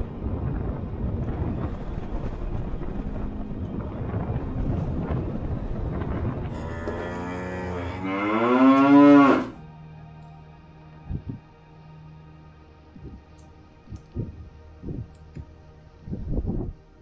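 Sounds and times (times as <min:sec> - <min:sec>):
steady rushing noise: 0:00.0 - 0:06.9
cow mooing: 0:06.5 - 0:09.6.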